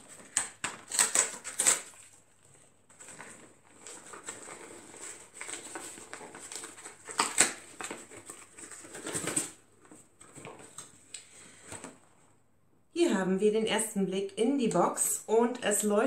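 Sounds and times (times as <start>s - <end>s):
cardboard scraping and rustling: 0.0s - 12.1s.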